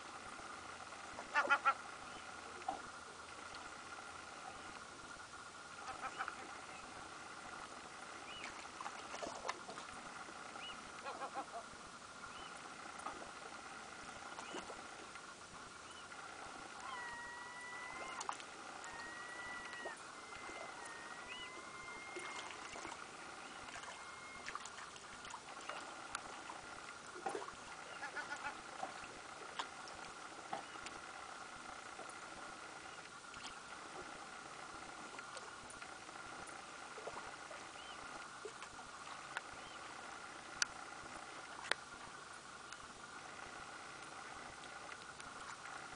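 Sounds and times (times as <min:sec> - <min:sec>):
small water splashes: 0:08.2 - 0:11.7, 0:12.3 - 0:16.0, 0:16.8 - 0:31.1
whistle-like tones: 0:17.0 - 0:22.5.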